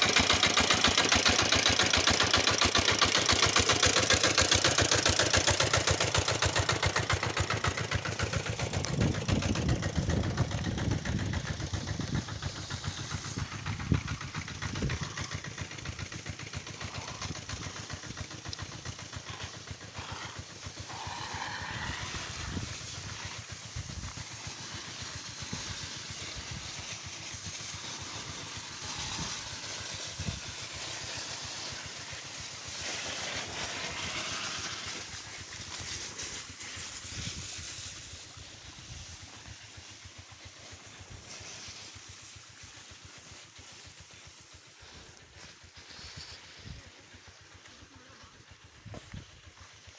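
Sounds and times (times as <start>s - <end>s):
engine running: 0.0s - 49.9s.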